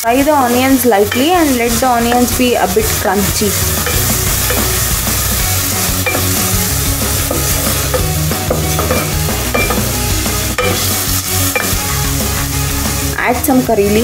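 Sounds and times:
onions sizzling in a pan: 0:00.0 - 0:14.0
wooden spoon scraping a pan: 0:02.1 - 0:10.0.

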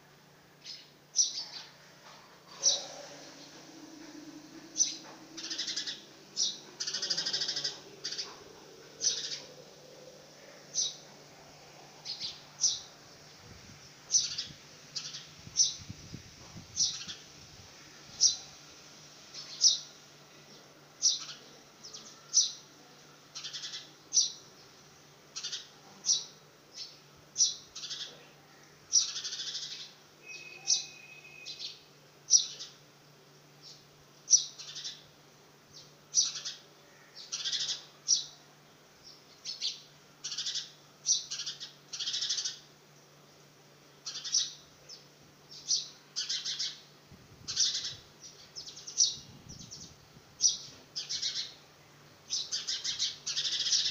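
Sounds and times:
sparrow chirping: 0:00.6 - 0:01.7, 0:04.8 - 0:10.1, 0:12.0 - 0:13.0, 0:14.1 - 0:15.9, 0:16.8 - 0:17.2, 0:28.9 - 0:32.7, 0:33.6 - 0:35.0, 0:39.1 - 0:42.6, 0:44.0 - 0:46.8, 0:47.5 - 0:51.6, 0:52.3 - 0:53.9.

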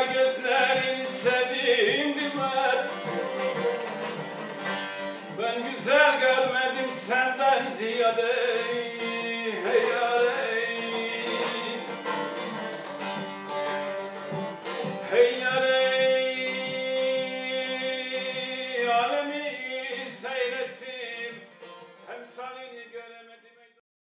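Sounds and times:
person singing long notes: 0:00.0 - 0:04.4, 0:05.3 - 0:12.8, 0:14.9 - 0:21.4
plucked guitar: 0:00.0 - 0:22.4.

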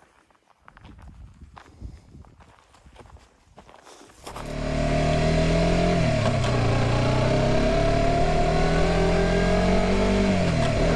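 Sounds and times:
motorcycle engine running: 0:04.3 - 0:10.9.

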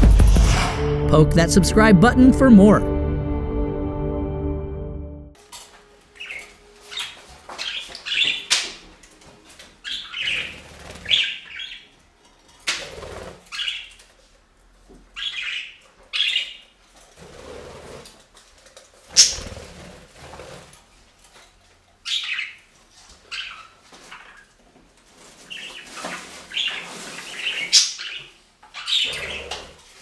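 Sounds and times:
budgerigars chirping: 0:06.2 - 0:08.7, 0:09.8 - 0:11.9, 0:13.5 - 0:14.0, 0:15.2 - 0:16.7, 0:19.1 - 0:19.6, 0:22.1 - 0:22.6, 0:23.3 - 0:24.4, 0:25.5 - 0:29.7
wings fluttering: 0:09.8 - 0:11.7, 0:19.1 - 0:20.8.

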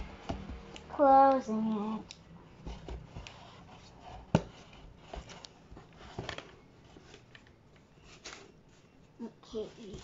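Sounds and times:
cardboard knocks and rustles: 0:04.2 - 0:07.2.

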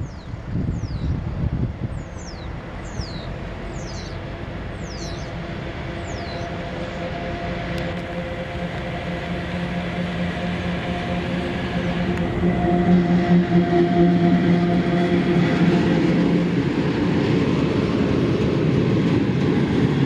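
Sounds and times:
electric locomotive hauling freight train: 0:00.0 - 0:20.0.

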